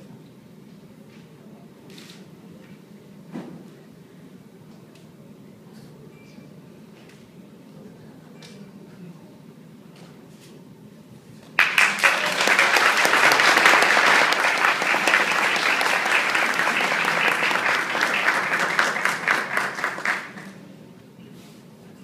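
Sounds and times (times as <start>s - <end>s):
audience applauding: 11.6s - 20.6s.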